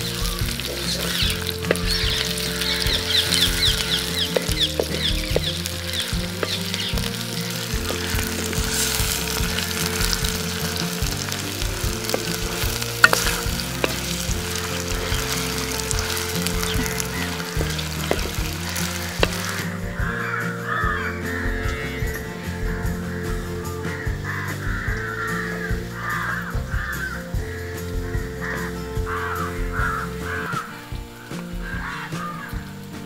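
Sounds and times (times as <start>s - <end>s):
curry sizzling in a pan: 0.0s - 21.4s.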